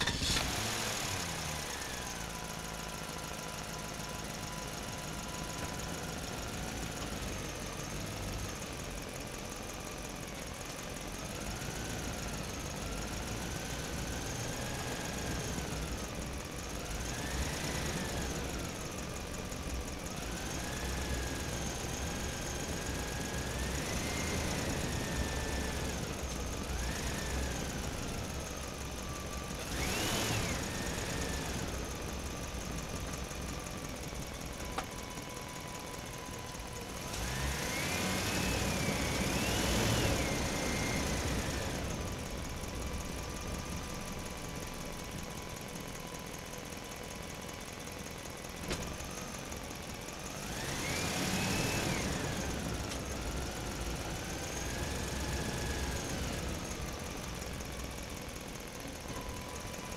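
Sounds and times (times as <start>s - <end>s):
toy truck engine sound effect: 0.0s - 7.8s.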